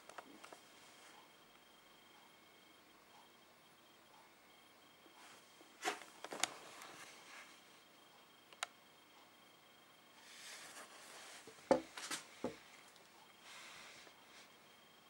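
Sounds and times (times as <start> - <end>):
breath hiss: 13.4 - 14.6.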